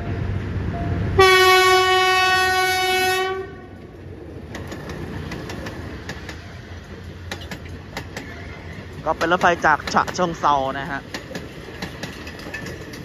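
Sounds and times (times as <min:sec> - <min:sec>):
low rumble of train: 0:00.0 - 0:13.0
locomotive horn blast: 0:01.2 - 0:03.8
wheels clicking over rail joints: 0:03.8 - 0:13.0.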